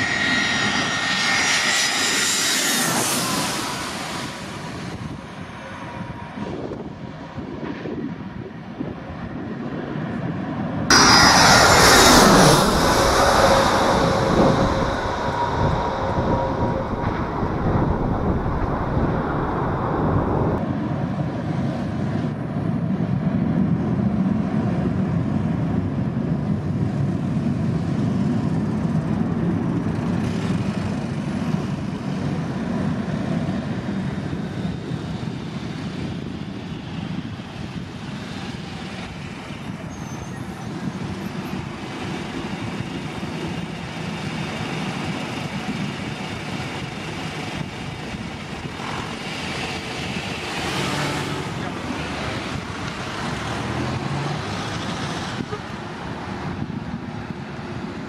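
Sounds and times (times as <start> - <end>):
jet engines rumbling: 0.0 - 58.0
faint high whine: 10.9 - 20.6.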